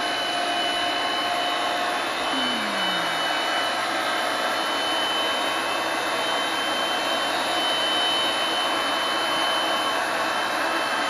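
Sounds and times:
thin high whine: 2.3 - 3.8.

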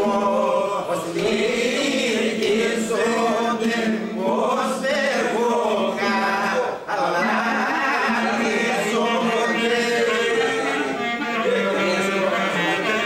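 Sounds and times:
men singing together: 0.0 - 13.0.

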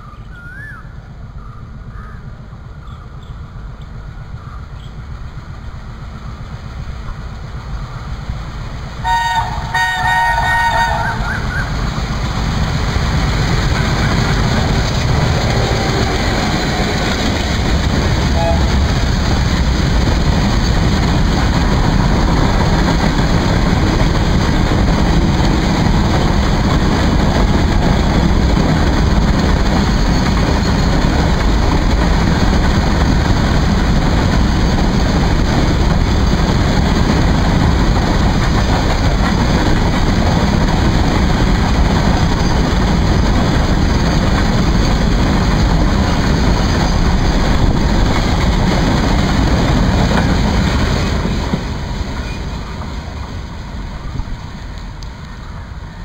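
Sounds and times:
freight train rumbling past: 0.0 - 56.0.

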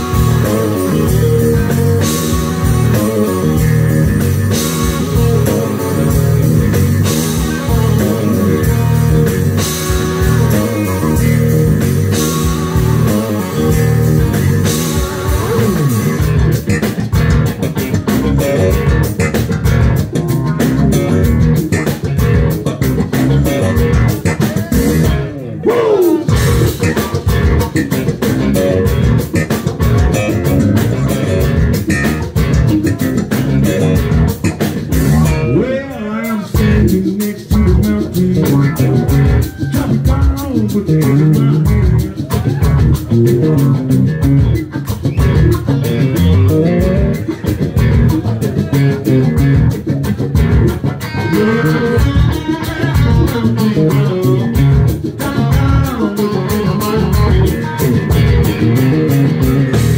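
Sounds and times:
electric guitar: 0.0 - 59.9
live blues-rock band: 0.0 - 59.9.

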